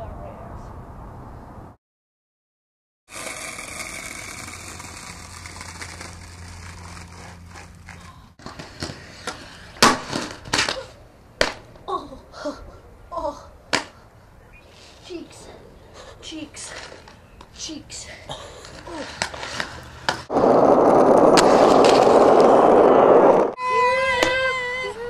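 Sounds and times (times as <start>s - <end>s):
outdoor background noise: 0.0s - 1.8s, 3.1s - 25.0s
skater falling on concrete steps: 3.3s - 11.8s, 18.3s - 22.6s.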